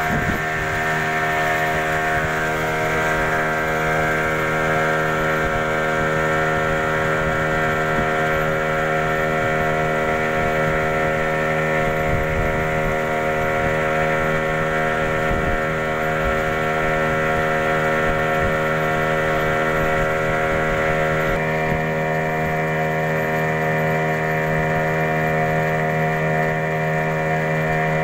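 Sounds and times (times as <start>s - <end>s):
outboard motor droning: 0.0s - 28.0s.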